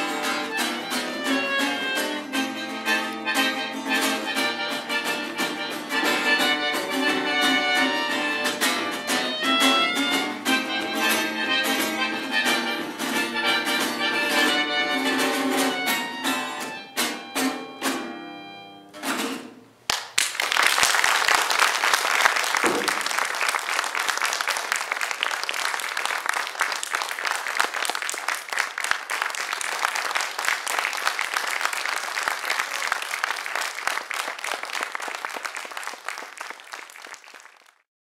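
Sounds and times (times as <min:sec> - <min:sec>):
audience applauding: 0:19.9 - 0:37.9.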